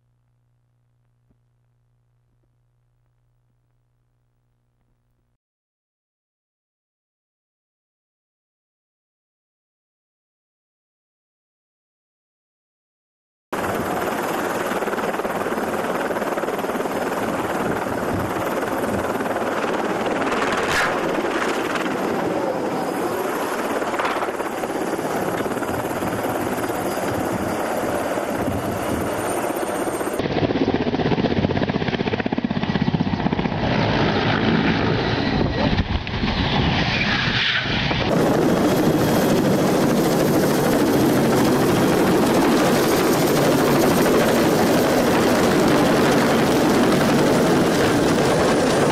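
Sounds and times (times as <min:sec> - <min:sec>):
helicopter turbine and rotor: 0:13.6 - 0:48.9.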